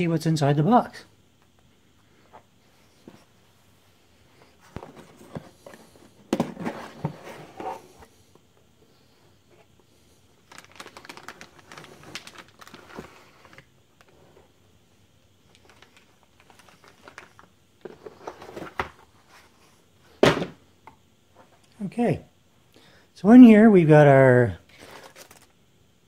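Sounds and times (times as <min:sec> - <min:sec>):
plastic bag crinkling: 0:10.4 - 0:13.7, 0:15.5 - 0:17.5, 0:24.7 - 0:25.5.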